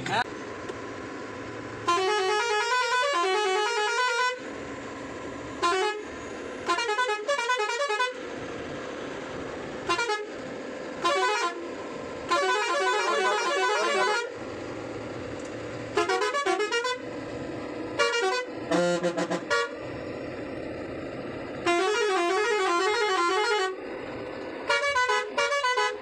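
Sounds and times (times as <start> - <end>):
musical air horn blasts: 1.8 - 4.4, 5.6 - 8.2, 9.9 - 10.3, 11.0 - 11.7, 12.3 - 14.4, 16.0 - 17.1, 18.0 - 19.8, 21.6 - 23.8, 24.7 - 26.0.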